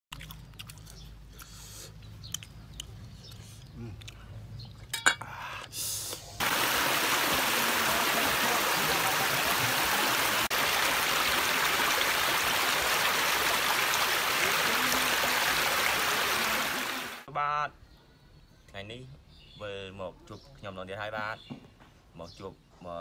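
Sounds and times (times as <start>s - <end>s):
stream splashing over rocks: 6.4s - 17.3s.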